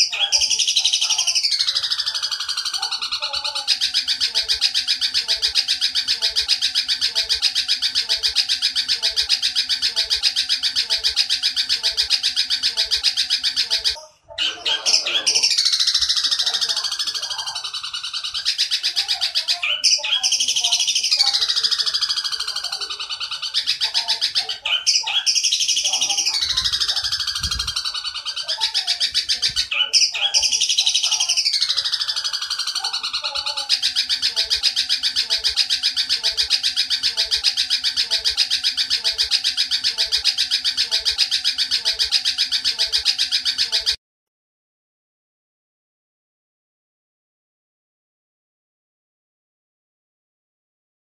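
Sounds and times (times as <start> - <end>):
sparrow rapid chatter: 0.0 - 44.0.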